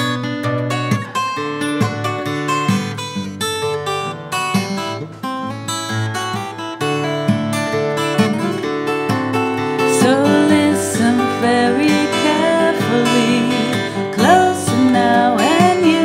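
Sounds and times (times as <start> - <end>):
acoustic guitar playing: 0.0 - 16.0
woman singing: 9.8 - 16.0.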